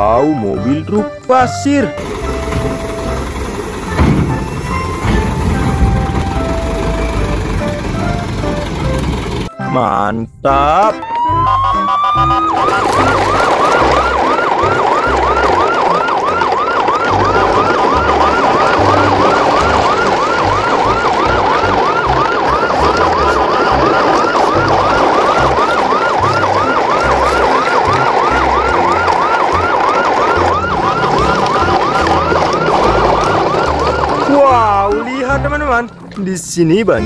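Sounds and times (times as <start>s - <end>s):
low pulsing bass: 2.0s - 9.5s
siren yelping: 10.8s - 36.0s.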